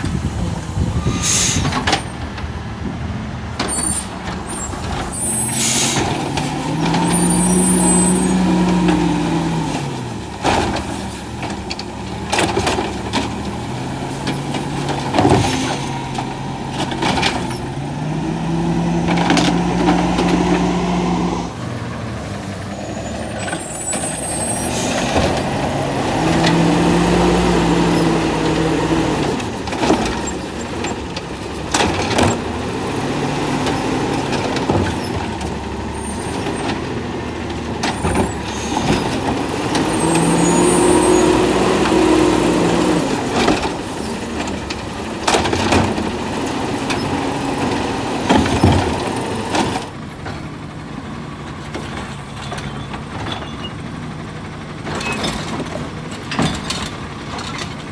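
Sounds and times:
garbage truck engine revving: 0:00.1 - 0:57.9
plastic carts banging and clanking: 0:10.4 - 0:17.7, 0:19.0 - 0:20.5, 0:29.3 - 0:32.6, 0:43.2 - 0:46.2, 0:46.8 - 0:50.4, 0:54.9 - 0:57.9.

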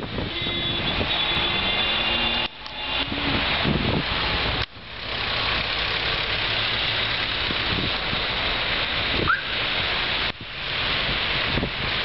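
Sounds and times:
wind on microphone: 0:00.0 - 0:01.5, 0:03.0 - 0:04.6
car traffic: 0:00.0 - 0:12.0.

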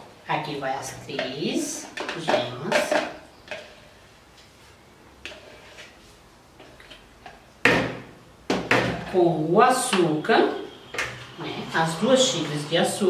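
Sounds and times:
spatula scraping plastic cup: 0:05.3 - 0:06.1.

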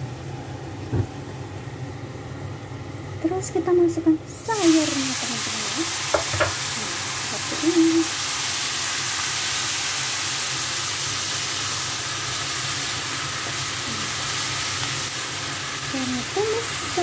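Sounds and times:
vegetables sizzling in a frying pan: 0:00.0 - 0:17.0.

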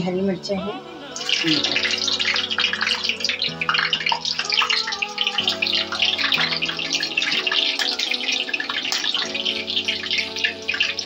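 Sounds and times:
background music: 0:00.0 - 0:11.0
chillies sizzling in hot oil: 0:01.0 - 0:11.0.

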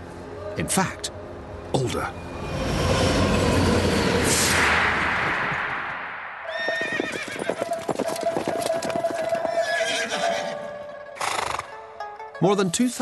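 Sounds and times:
horse whinnying: 0:06.5 - 0:07.7, 0:09.2 - 0:11.7
horse hooves clattering: 0:06.5 - 0:10.5.

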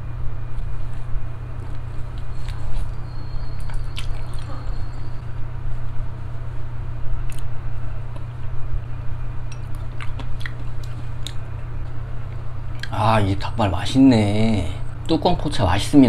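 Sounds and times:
low hum: 0:00.0 - 0:16.0
wet chewing and gnawing: 0:00.5 - 0:05.2, 0:07.2 - 0:07.5, 0:09.5 - 0:13.0.

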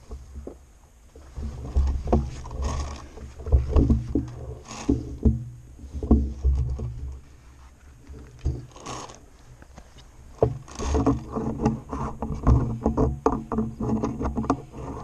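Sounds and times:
clothing and gear rustling: 0:00.0 - 0:04.9, 0:07.2 - 0:11.4
low rumble of handling noise: 0:00.0 - 0:15.0.

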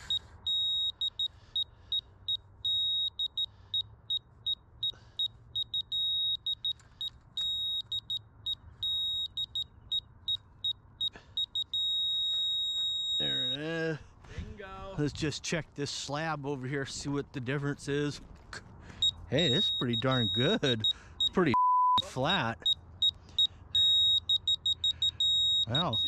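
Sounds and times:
laser receiver beeping: 0:11.4 - 0:13.6, 0:19.1 - 0:23.2, 0:23.8 - 0:26.0.

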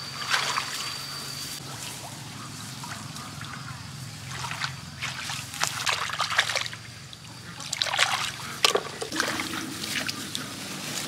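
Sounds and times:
hands splashing in muddy water: 0:04.3 - 0:06.8, 0:07.6 - 0:10.2.

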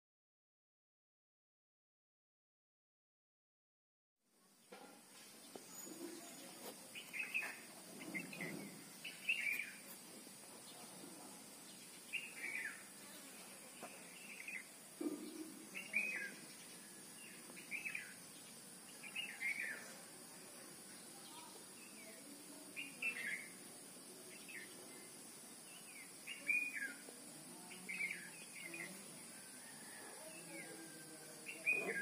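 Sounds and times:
bird chirping: 0:04.5 - 0:32.0.

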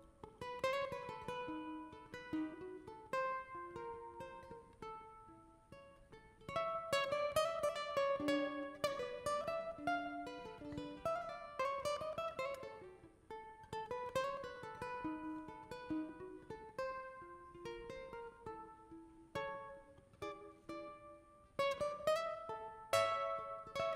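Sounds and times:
small guitar plucked melody: 0:00.0 - 0:23.9.

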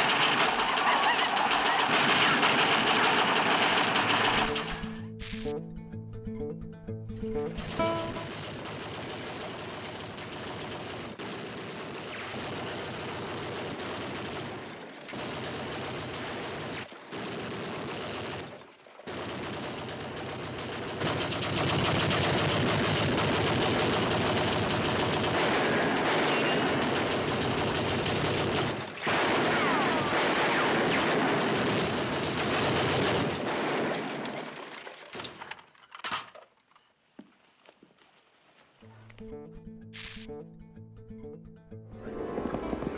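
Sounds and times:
gatling gun firing rapid bursts: 0:00.0 - 0:05.5, 0:07.3 - 0:34.0.

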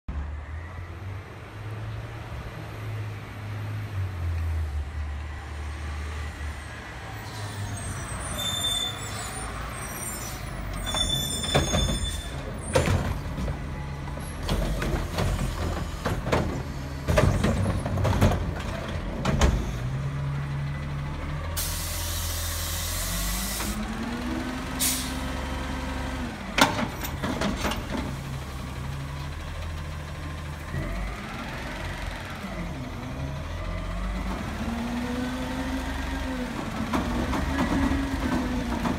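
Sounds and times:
knocks and bangs of cart shaking: 0:14.4 - 0:19.6
air brake hiss: 0:21.6 - 0:23.8, 0:24.8 - 0:25.2.

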